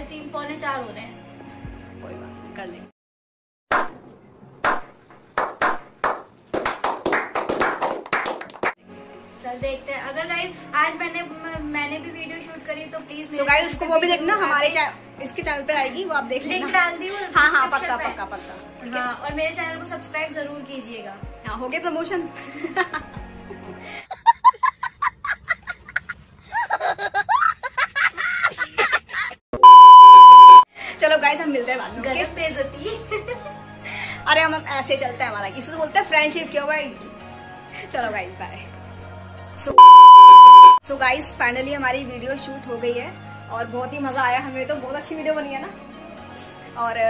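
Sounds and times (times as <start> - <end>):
group clapping: 3.7 - 4.0, 4.6 - 8.8
young boy laughing: 24.0 - 29.4.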